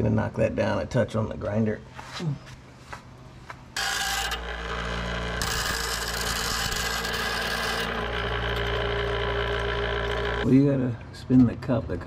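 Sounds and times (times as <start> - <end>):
bench grinder running: 3.8 - 10.5
metal grinding against wheel: 3.8 - 10.5.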